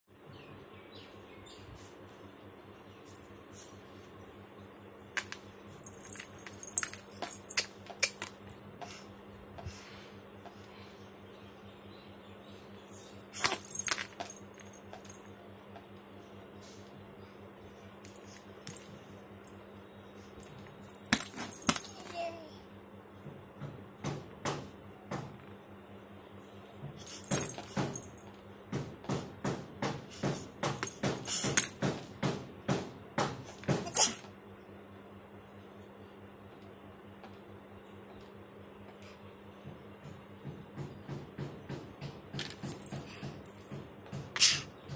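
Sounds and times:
metal anklets jingling: 0:05.2 - 0:08.6, 0:13.0 - 0:15.2.

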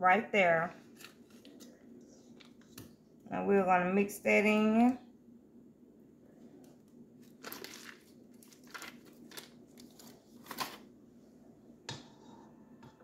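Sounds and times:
wrapper crinkling: 0:07.2 - 0:10.9.

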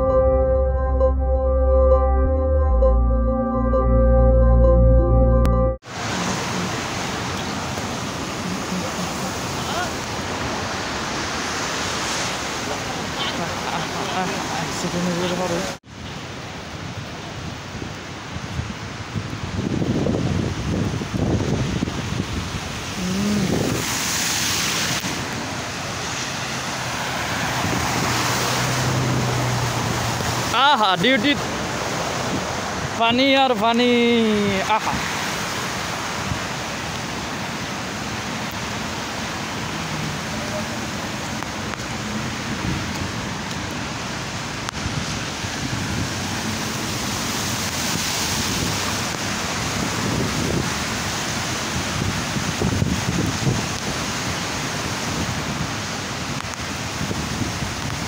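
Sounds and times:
rain on wet street: 0:05.8 - 0:58.0
wind buffeting microphone: 0:17.5 - 0:25.5, 0:27.1 - 0:30.5, 0:47.5 - 0:54.3, 0:54.9 - 0:58.0.

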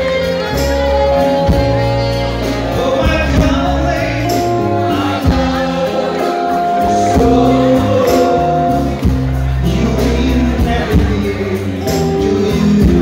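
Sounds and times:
live band with drums: 0:00.0 - 0:13.0
man singing into microphone: 0:02.6 - 0:13.0.

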